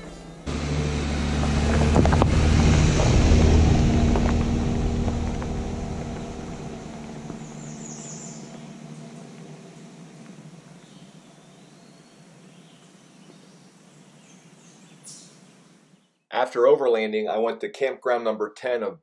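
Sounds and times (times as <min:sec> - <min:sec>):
car engine driving past: 0:00.4 - 0:11.3.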